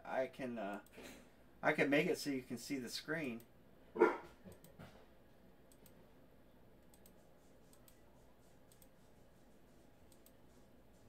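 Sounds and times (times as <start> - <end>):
computer mouse clicks: 5.7 - 6.0, 6.8 - 8.0, 8.6 - 9.0, 10.1 - 10.4.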